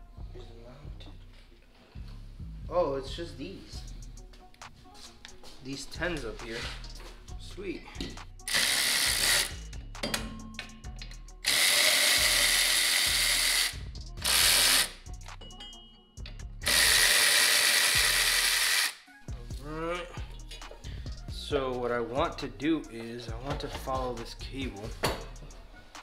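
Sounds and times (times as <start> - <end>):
power drill spinning: 8.5 - 9.6, 11.4 - 15.0, 16.6 - 19.0.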